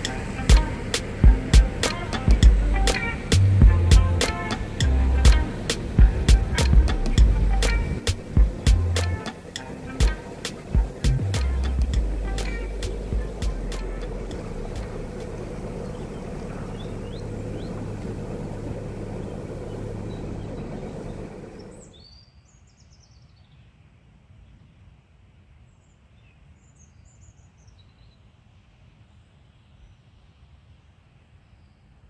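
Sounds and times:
boat engine humming: 0.0s - 22.0s
small birds chirping: 0.0s - 23.8s.

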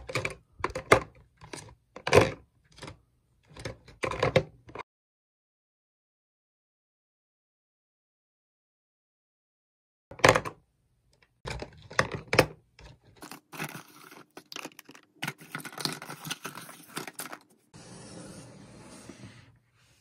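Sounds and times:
pens clattering into plastic organizer: 0.0s - 4.8s, 11.5s - 17.6s
plastic organizer scraping across desk: 15.2s - 20.0s.

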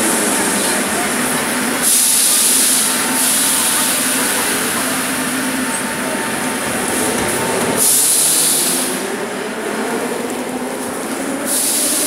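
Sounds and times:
train equipment humming and hissing: 0.0s - 12.0s
loud hiss: 1.7s - 4.8s, 7.8s - 9.0s, 11.5s - 12.0s.

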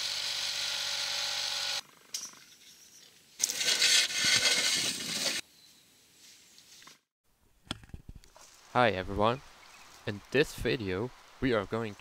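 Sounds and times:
rusty pulley scraping rasp: 3.4s - 5.4s.

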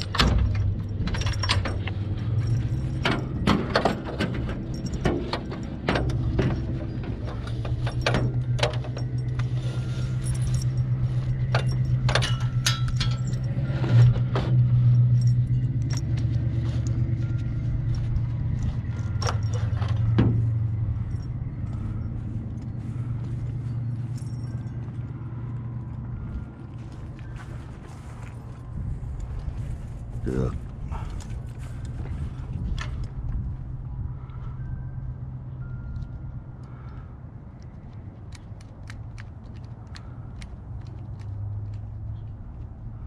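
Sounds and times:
ladder rack rattling: 0.0s - 22.1s
vehicle engine idling: 0.0s - 43.0s.

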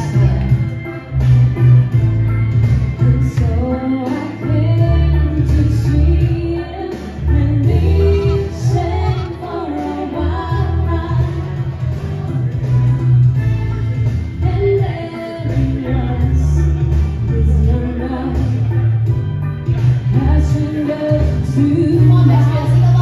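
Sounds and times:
music with strong bass: 0.0s - 23.0s
women singing through pa: 3.6s - 11.6s.

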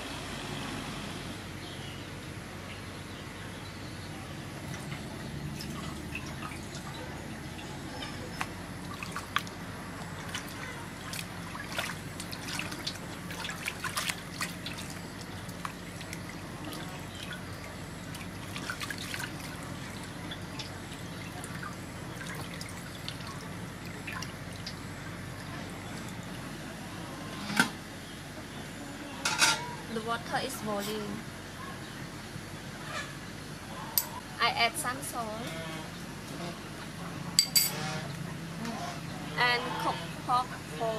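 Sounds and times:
water splashing and dripping: 4.7s - 26.4s.

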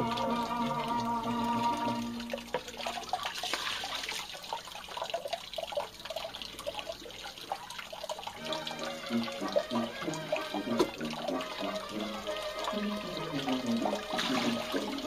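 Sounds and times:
background music: 0.0s - 2.5s, 8.4s - 15.0s
water splashing and trickling: 0.0s - 15.0s.

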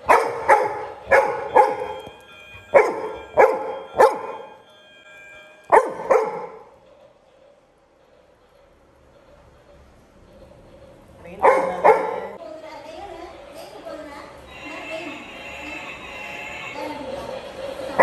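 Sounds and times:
dog barking: 0.0s - 2.0s, 2.7s - 4.5s, 5.7s - 6.7s, 11.4s - 12.4s.

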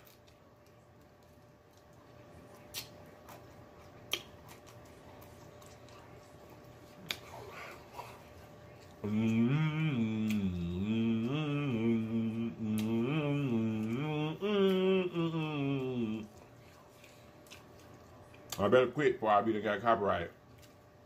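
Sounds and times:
man humming a tune: 9.0s - 16.3s.

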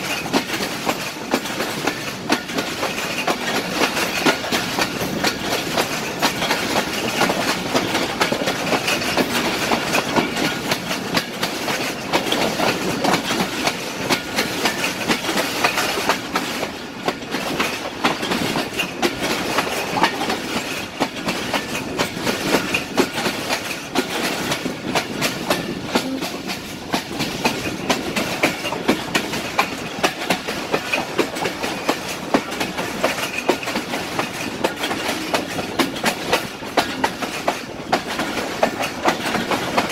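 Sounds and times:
train rumble and rush: 0.0s - 39.9s
train wheels clicking over track: 0.0s - 39.9s.

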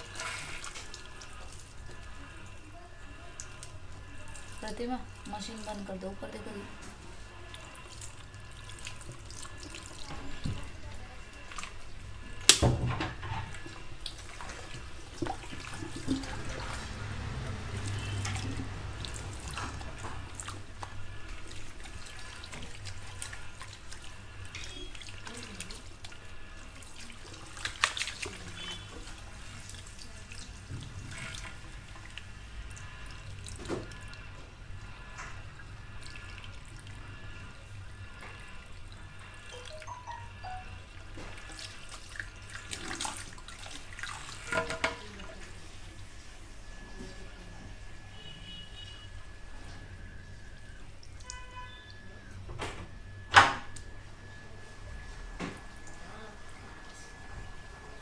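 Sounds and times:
shower sprayer water splashing: 0.0s - 40.0s, 40.9s - 46.9s.

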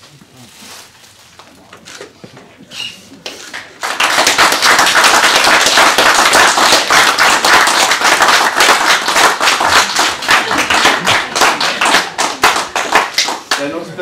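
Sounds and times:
audience applauding: 3.3s - 14.0s.

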